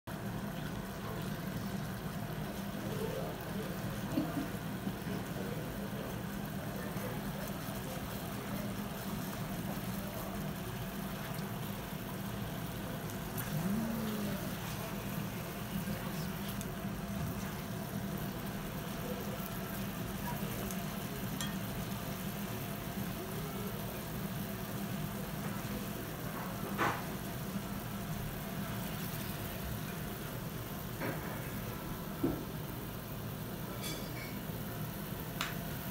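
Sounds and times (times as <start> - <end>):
steady low hum: 0.1 - 26.4
beef sizzling in sauce: 0.1 - 35.9.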